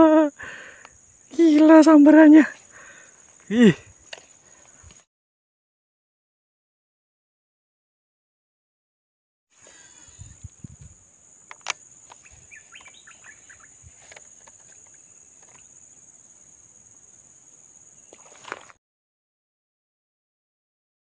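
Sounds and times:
insects chirping: 0.0s - 5.1s, 9.5s - 18.8s
sharp clicks: 11.4s - 13.0s
bird chirping: 11.9s - 16.2s.

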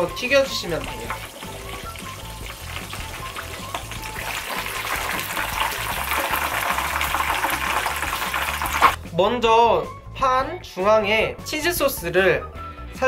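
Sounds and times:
chicken sizzling in hot oil: 0.0s - 9.0s
background music: 0.0s - 13.0s.

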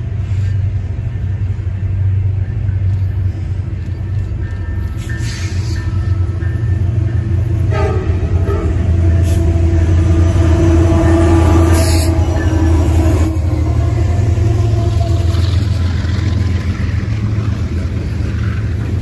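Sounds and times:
diesel locomotive engine rumbling: 0.0s - 19.0s
freight cars rolling on rails: 0.0s - 19.0s
locomotive horn blast: 7.5s - 16.0s.

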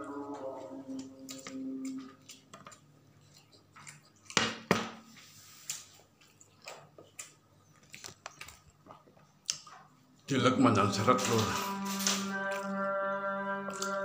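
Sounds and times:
clicks and rustles of handling food: 1.4s - 10.0s.

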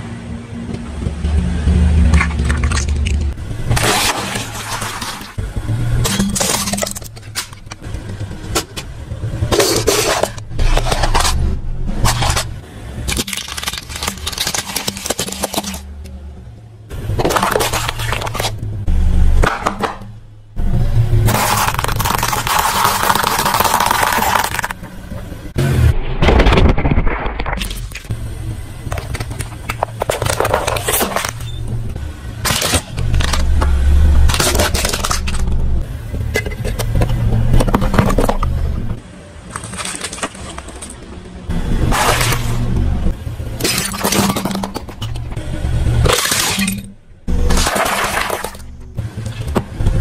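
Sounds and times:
car engine humming: 0.0s - 26.1s, 27.6s - 50.0s
noodle cups crunching: 13.1s - 15.8s, 21.3s - 24.8s, 39.5s - 41.0s
plastic toys cracking and snapping: 13.1s - 15.9s, 21.3s - 24.8s, 32.4s - 33.7s, 34.3s - 35.5s.

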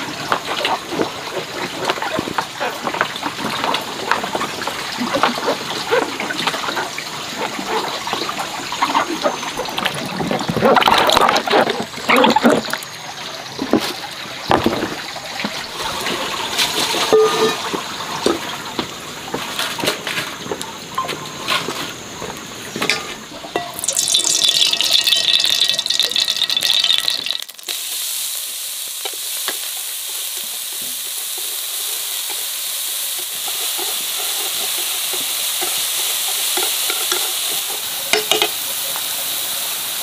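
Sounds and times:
water splashing and pouring: 0.0s - 20.4s, 23.2s - 40.0s
clatters and knocks in water: 0.1s - 12.8s, 13.6s - 15.6s.

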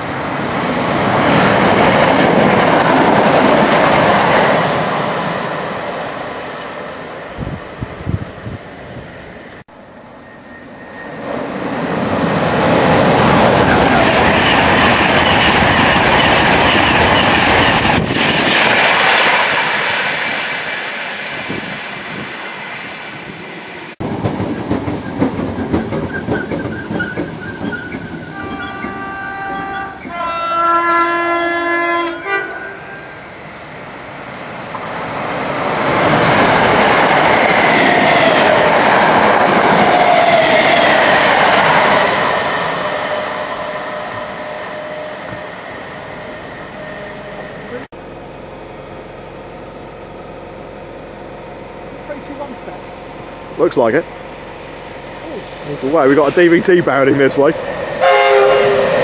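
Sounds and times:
train passing at speed: 0.0s - 59.0s
train passing loudly: 0.0s - 59.0s
two-note train horn: 28.3s - 33.2s, 58.0s - 58.9s.

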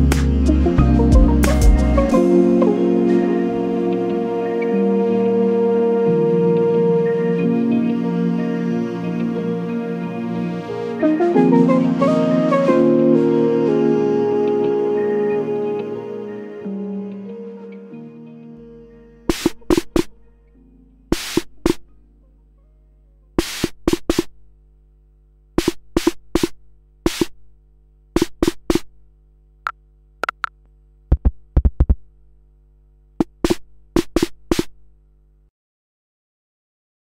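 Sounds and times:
steady low hum: 18.6s - 35.5s
electronic snare hits: 19.3s - 20.1s, 21.1s - 21.8s, 23.4s - 24.4s, 25.6s - 27.4s, 28.2s - 28.9s, 33.2s - 34.8s.

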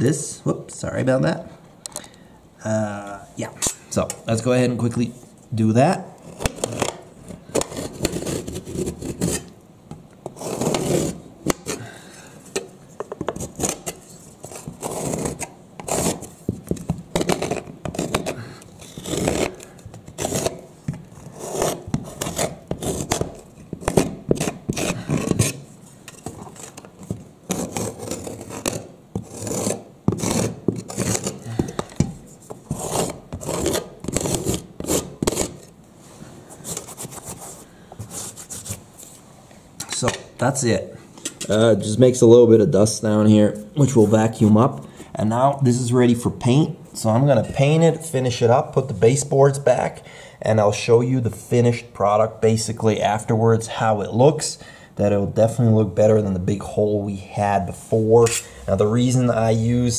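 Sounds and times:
metal blade scraping plaster: 6.3s - 9.5s, 10.3s - 11.8s, 13.4s - 16.4s, 17.2s - 26.8s, 27.5s - 31.5s, 32.7s - 35.7s.

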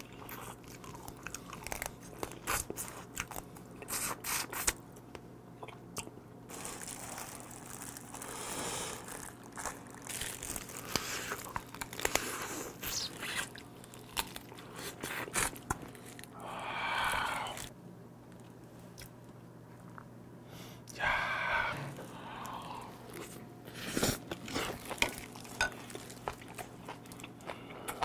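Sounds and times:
crab shell crunching in teeth: 0.0s - 3.6s, 9.0s - 16.4s
plastic gloves crinkling: 6.5s - 16.4s, 24.2s - 27.1s.

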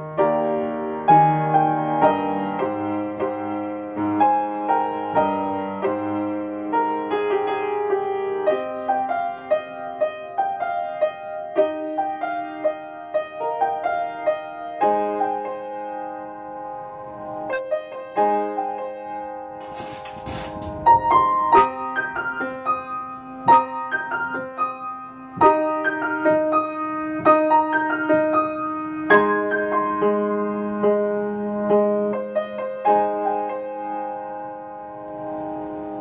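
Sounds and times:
upright piano playing: 0.0s - 36.0s.

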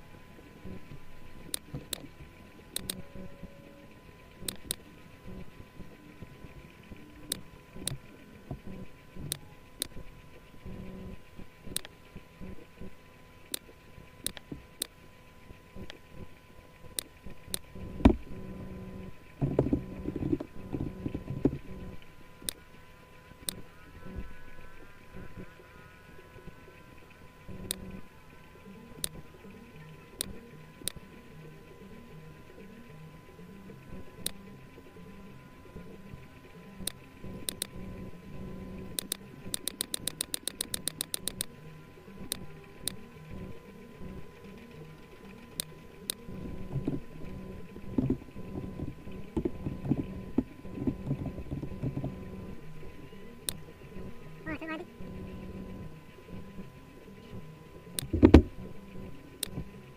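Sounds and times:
faint low hum: 0.0s - 59.9s
computer mouse clicks: 1.5s - 2.1s, 2.7s - 3.1s, 4.4s - 5.4s, 7.3s - 8.0s, 8.6s - 10.0s, 11.7s - 12.6s, 13.5s - 14.9s, 16.9s - 18.5s, 27.5s - 28.0s, 30.2s - 31.0s, 34.2s - 34.4s, 36.8s - 41.5s, 42.2s - 44.2s, 45.3s - 52.4s, 58.0s - 58.5s, 59.4s - 59.7s
low drone: 15.4s - 59.9s.

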